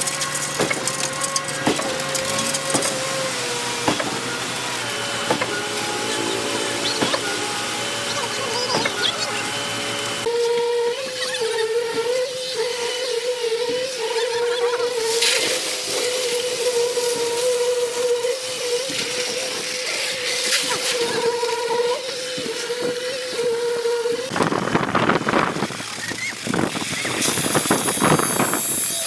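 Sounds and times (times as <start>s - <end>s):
concrete pump droning hum: 0.0s - 29.0s.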